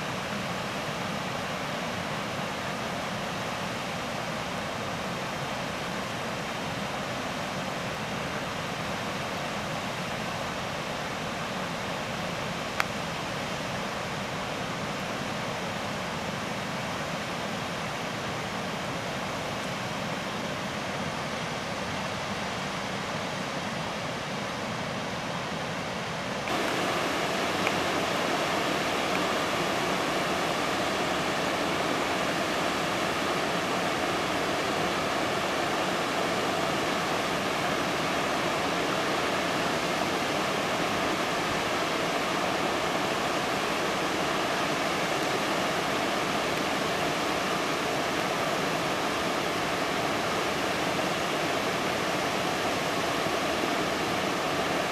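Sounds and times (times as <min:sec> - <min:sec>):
floodwater rushing: 0:26.5 - 0:54.9.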